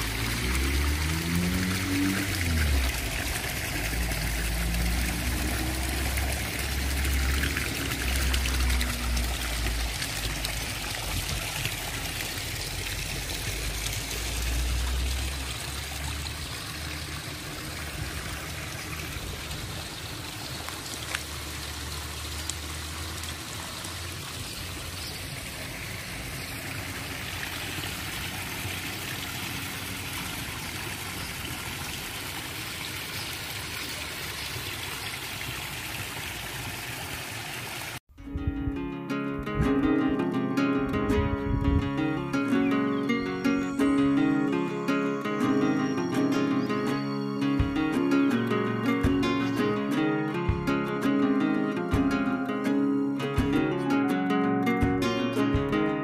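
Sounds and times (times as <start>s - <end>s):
water pouring into stone trough: 0.0s - 38.0s.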